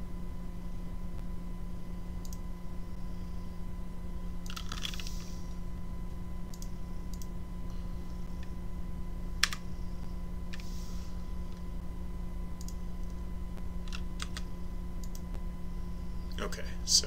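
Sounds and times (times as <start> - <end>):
steady low hum: 0.0 - 17.0
computer keyboard key presses: 13.9 - 14.4
mouse clicks: 13.9 - 15.2.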